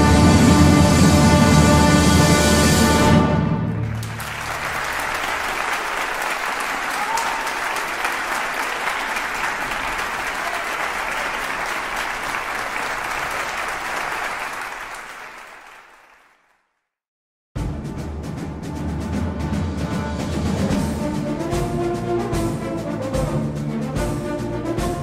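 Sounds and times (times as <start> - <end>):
many hands clapping: 3.8 - 16.6.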